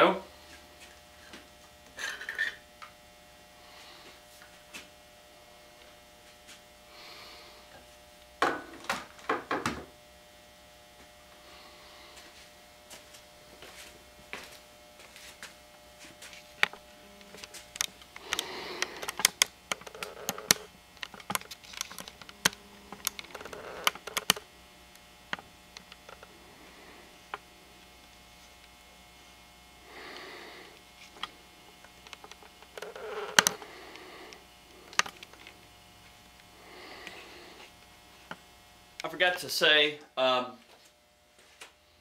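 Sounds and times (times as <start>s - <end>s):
rustling and scraping: 12.1s - 24.4s, 30.0s - 35.6s.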